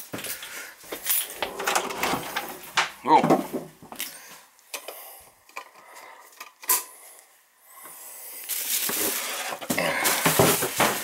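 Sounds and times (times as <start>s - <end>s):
footsteps: 0.0s - 4.4s.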